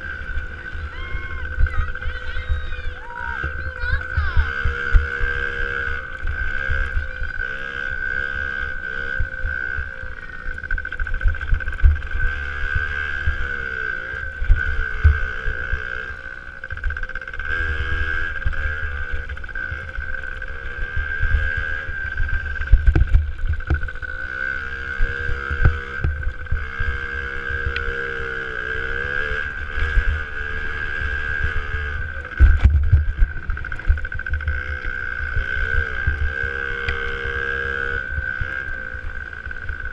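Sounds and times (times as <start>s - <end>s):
two-stroke motorbike engine revving: 0.0s - 39.9s
wind rumble on microphone: 16.4s - 24.2s, 29.4s - 39.9s.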